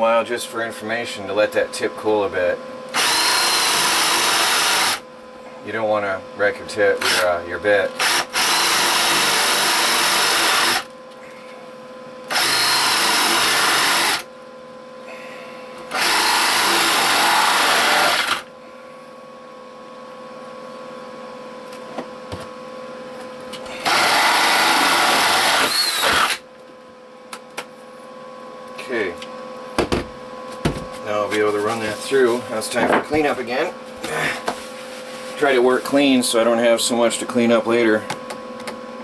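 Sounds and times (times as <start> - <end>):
cordless drill boring into wood: 3.0 - 5.0, 8.0 - 10.9, 12.3 - 14.3, 15.9 - 18.5, 23.8 - 26.4.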